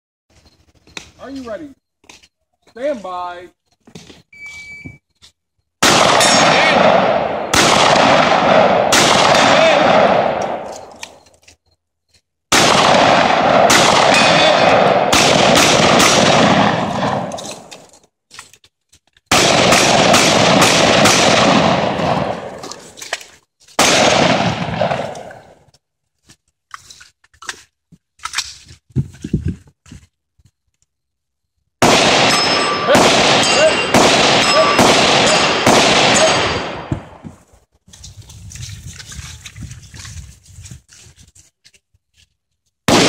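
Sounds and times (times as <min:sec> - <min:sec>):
shotgun shots echoing: 0:05.8 - 0:11.2, 0:12.5 - 0:17.8, 0:19.3 - 0:22.9, 0:23.8 - 0:25.6, 0:31.8 - 0:37.2.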